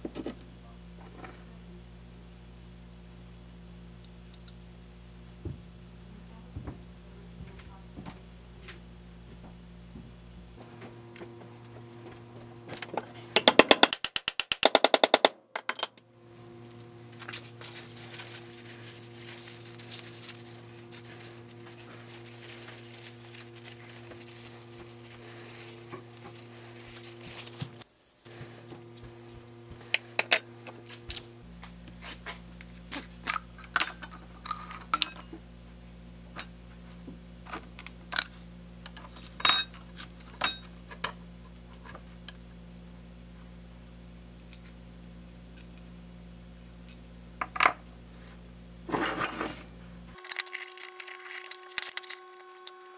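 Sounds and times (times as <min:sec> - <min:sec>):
steady background hum: 0:00.0 - 0:52.9
metal parts clinking: 0:33.2 - 0:35.3, 0:48.9 - 0:52.8.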